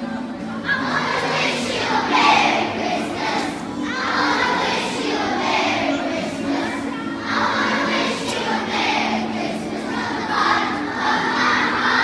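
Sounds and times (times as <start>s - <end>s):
children singing a carol: 0.0s - 12.0s.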